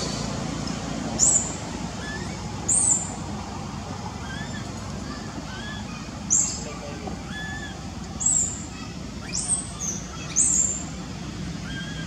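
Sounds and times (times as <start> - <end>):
sharp high bird chirps: 7.3 - 8.6, 9.2 - 10.9.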